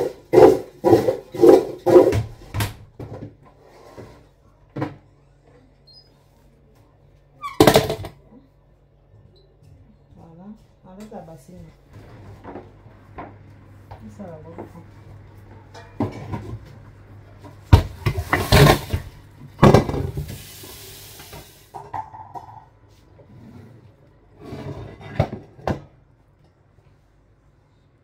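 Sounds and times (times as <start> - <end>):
basin and dishes clattering: 15.6 - 16.9, 17.7 - 20.5.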